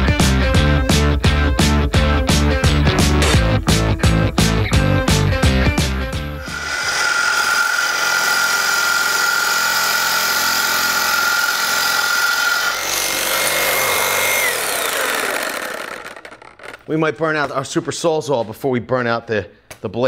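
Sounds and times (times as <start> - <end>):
background music with a beat: 0.0 - 6.4
reciprocating saw cutting steel: 6.4 - 16.9.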